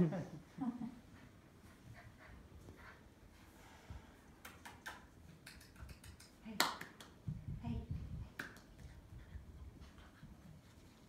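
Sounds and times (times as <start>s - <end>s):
fingers snapping: 4.4s - 7.2s, 8.4s - 8.8s
hands clapping: 4.4s - 7.3s, 8.3s - 8.9s.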